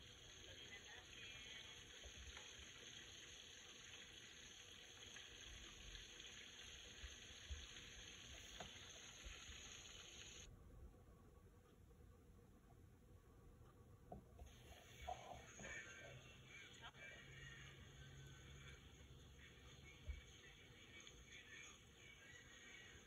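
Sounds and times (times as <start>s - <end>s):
chicken deep-frying in oil: 0.0s - 10.5s.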